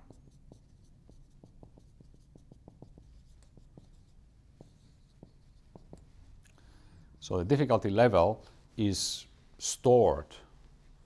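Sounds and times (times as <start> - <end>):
marker writing on a whiteboard: 0.0 - 6.5.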